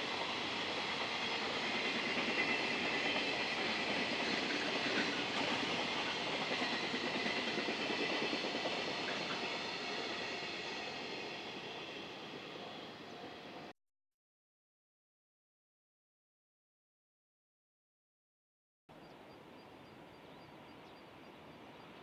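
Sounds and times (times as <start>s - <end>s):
freight train wheels on rails: 0.0s - 13.7s.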